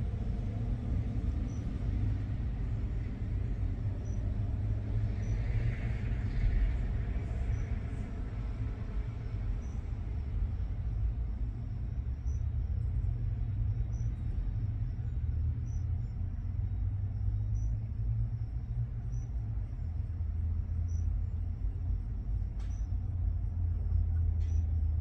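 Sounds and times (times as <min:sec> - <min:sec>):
vehicle engines idling: 0:00.0 - 0:25.0
faint high chirp: 0:22.6 - 0:23.0.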